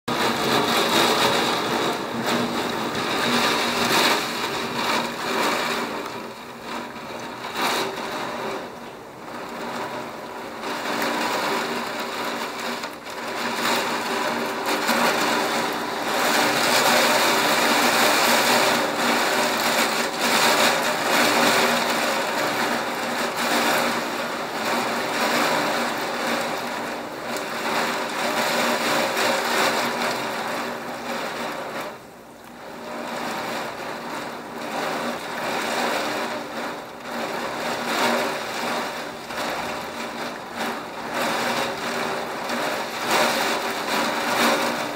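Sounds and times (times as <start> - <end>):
heavy rain: 0.1 - 44.9.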